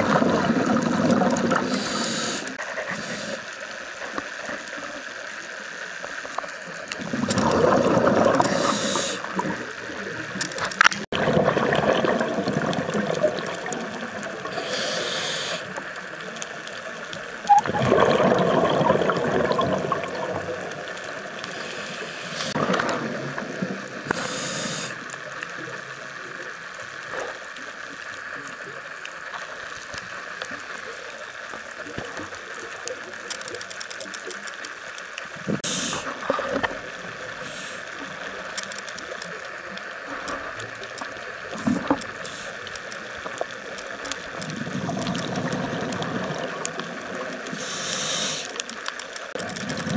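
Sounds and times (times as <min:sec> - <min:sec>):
bubbles gurgling underwater: 0:00.0 - 0:02.0, 0:07.0 - 0:09.7, 0:11.1 - 0:14.6, 0:17.4 - 0:21.4, 0:22.5 - 0:24.2, 0:44.3 - 0:47.6
regulator hissing: 0:01.5 - 0:03.6, 0:08.4 - 0:10.0, 0:14.4 - 0:15.8, 0:24.1 - 0:25.0, 0:35.6 - 0:36.2, 0:37.3 - 0:38.1, 0:47.5 - 0:48.7.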